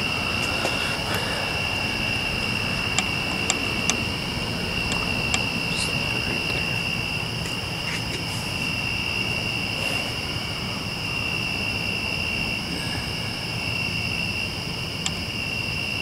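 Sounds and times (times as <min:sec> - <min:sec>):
crickets trilling: 0:00.0 - 0:16.0
low background rumble: 0:00.0 - 0:16.0.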